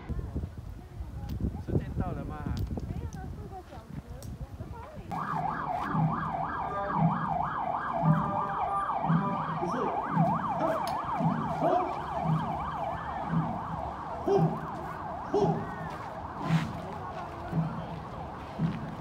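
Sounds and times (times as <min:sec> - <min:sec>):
low repeating thump: 0:05.1 - 0:19.0
yelp siren: 0:05.1 - 0:19.0.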